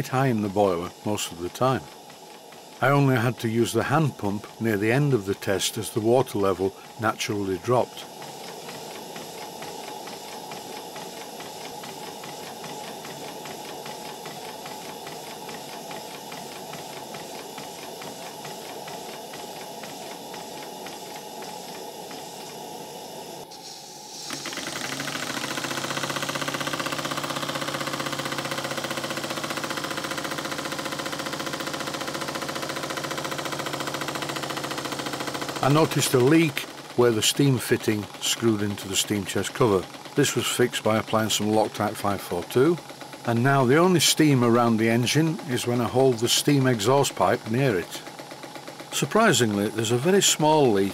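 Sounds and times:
model steam engine beating: 0.0s - 50.9s
steam hiss: 0.0s - 50.9s.

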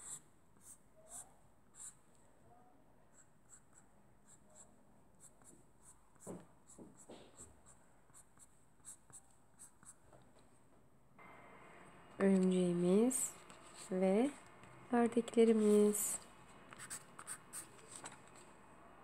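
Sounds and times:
marker pen scratching on paper: 0.0s - 2.0s, 13.3s - 14.4s, 15.4s - 18.5s.

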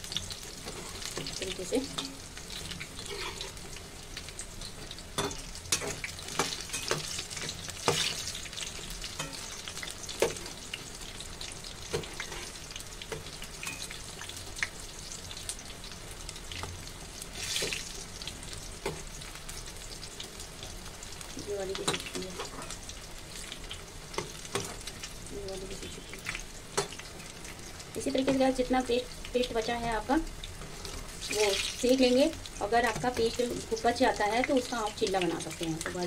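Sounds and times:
oil sizzling: 0.0s - 36.0s
metal utensils clinking on pan: 1.1s - 2.2s, 5.2s - 8.2s, 9.1s - 9.6s, 13.6s - 14.0s.

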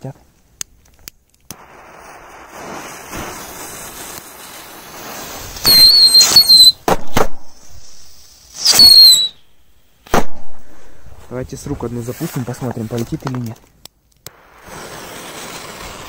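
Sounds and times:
firecracker cracks: 0.6s - 9.4s, 10.0s - 11.1s, 14.2s - 16.0s
whistling firecrackers: 1.5s - 9.5s, 14.3s - 16.0s.

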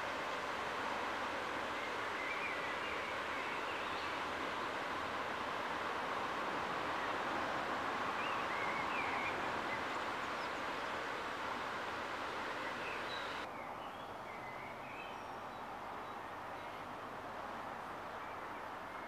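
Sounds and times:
small birds chirping: 12.3s - 15.4s.

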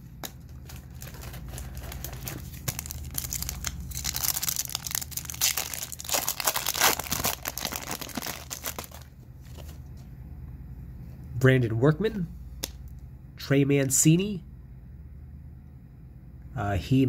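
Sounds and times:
foil wrapper crinkling and tearing: 0.0s - 9.7s.

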